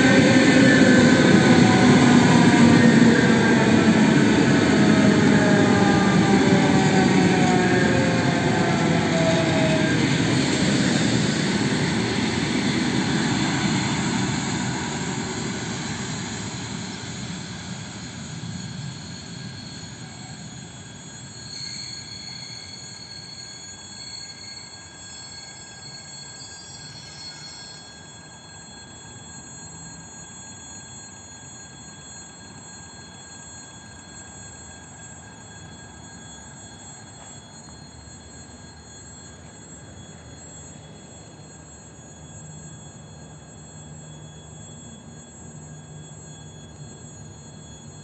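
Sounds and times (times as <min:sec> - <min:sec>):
train wheels on rails: 0:00.0 - 0:27.8
distant train high tones: 0:00.0 - 0:48.0
train motor whine: 0:00.0 - 0:48.0.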